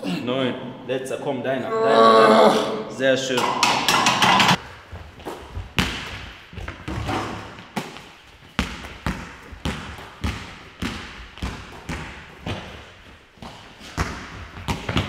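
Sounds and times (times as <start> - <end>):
basketball bouncing on hall floor: 3.5 - 15.0.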